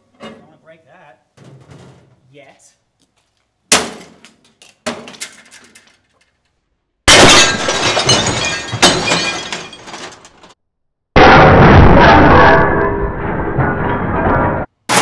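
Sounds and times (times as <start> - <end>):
glass plate shattering crash: 7.1 - 10.5.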